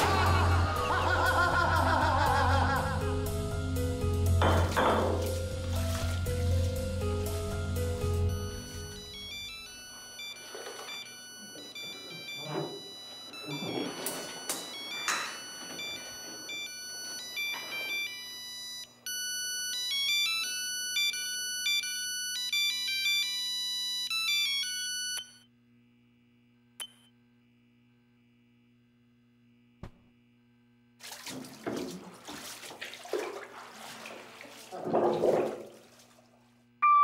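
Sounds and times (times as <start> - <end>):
phone ringtone melody: 8.2 - 25.4
water splashing in bathtub: 31.0 - 36.6.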